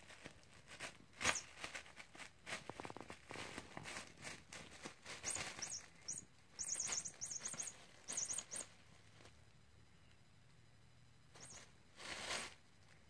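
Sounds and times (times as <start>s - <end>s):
bubble wrap crinkling: 0.0s - 6.1s
short high squeaks: 5.2s - 8.7s, 11.4s - 11.7s.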